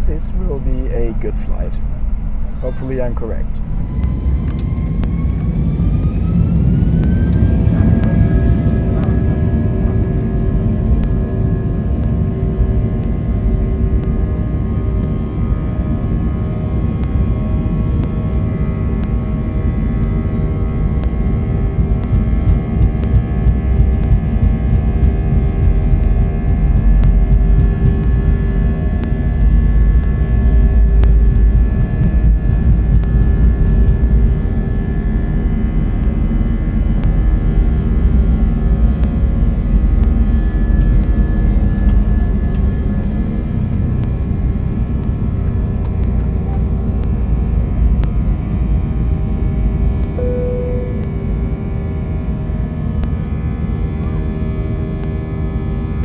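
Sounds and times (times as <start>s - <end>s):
jet engines spooling up: 0.0s - 12.2s
low rumble of takeoff roll: 0.0s - 56.0s.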